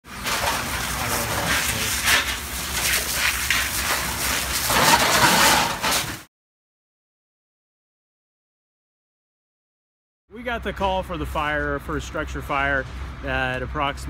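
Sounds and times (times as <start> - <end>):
fire hose spraying water: 0.0 - 6.3.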